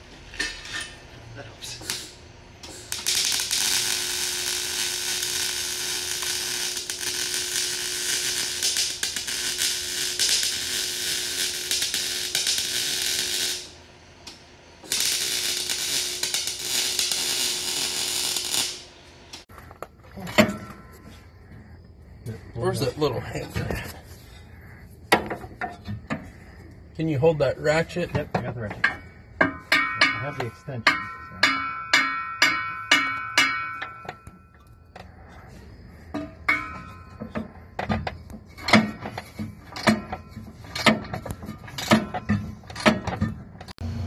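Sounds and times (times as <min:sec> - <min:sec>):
welder low hum: 0:01.6 - 0:19.4
welder crackling sizzle: 0:01.6 - 0:19.5
metal clicks and knocks: 0:36.1 - 0:43.7.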